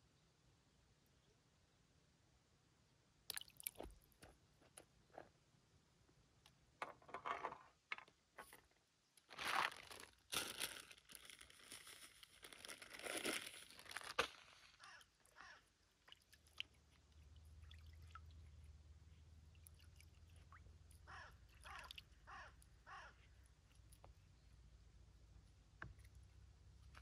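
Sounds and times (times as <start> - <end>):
faint low hum: 14.8 - 27.0.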